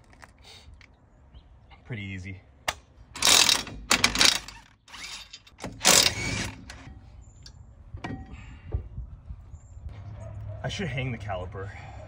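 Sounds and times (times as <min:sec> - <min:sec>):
cordless power tool spinning: 0:05.8 - 0:06.8.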